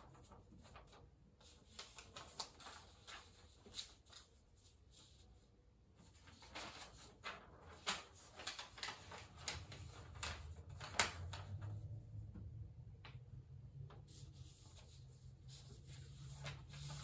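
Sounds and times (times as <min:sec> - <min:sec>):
paper rustling and crackling: 0:00.0 - 0:17.0
paper snap: 0:06.5 - 0:11.6.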